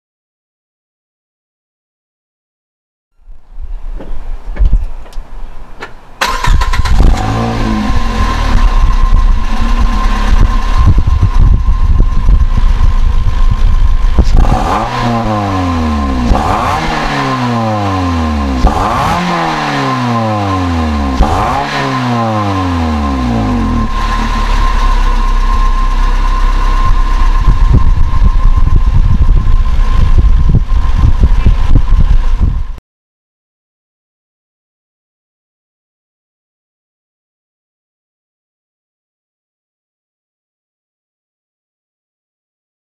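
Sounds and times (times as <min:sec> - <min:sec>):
car engine starter cranking: 0:06.2 - 0:07.5
car engine idling and revving: 0:06.2 - 0:32.8.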